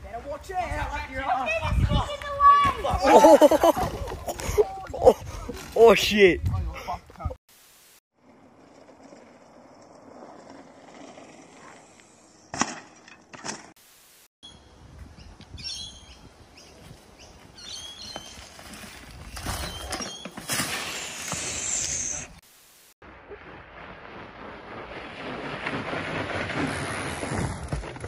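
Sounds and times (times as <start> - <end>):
birds chirping: 14.4 - 18.6, 19.2 - 20.4
bike crashing into dry leaves: 18.2 - 21.8, 23.3 - 28.0.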